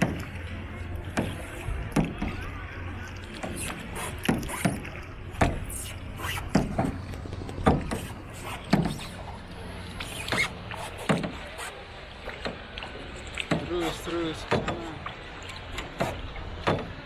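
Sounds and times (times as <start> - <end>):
steady low hum: 0.0 - 17.0
sharp irregular knocks: 16.0 - 16.9.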